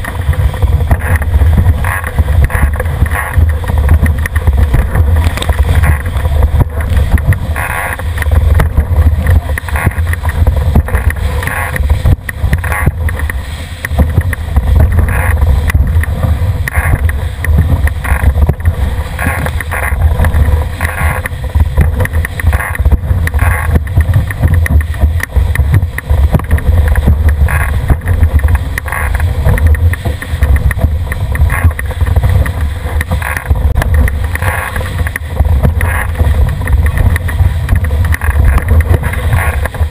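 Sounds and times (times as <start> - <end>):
spray splashing: 0.0 - 33.4
water rushing against hull: 0.0 - 39.9
wind buffeting microphone: 0.0 - 39.9.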